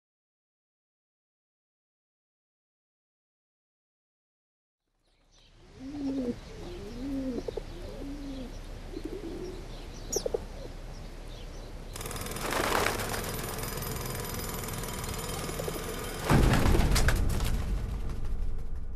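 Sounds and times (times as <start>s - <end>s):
pigeons cooing: 5.6s - 11.5s.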